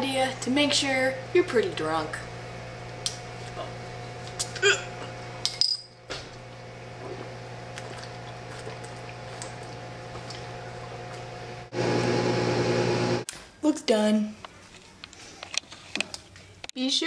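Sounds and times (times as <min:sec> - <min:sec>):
microwave oven humming: 0:00.0 - 0:13.3.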